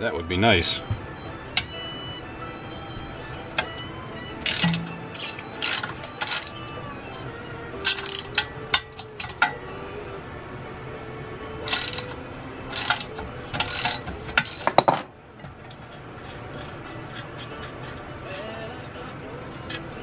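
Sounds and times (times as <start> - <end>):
socket ratchet clicking: 4.4 - 6.6, 7.8 - 9.4, 11.7 - 14.8.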